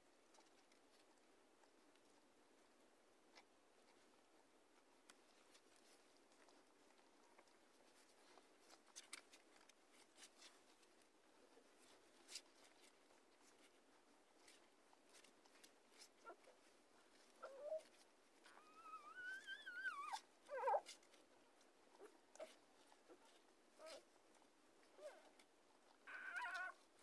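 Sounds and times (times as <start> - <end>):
puppies suckling: 5.2 - 27.0
puppy whimpering: 17.4 - 21.0, 22.0 - 24.1, 24.9 - 25.3, 26.0 - 26.8
puppy squealing: 18.5 - 20.8, 26.1 - 26.8.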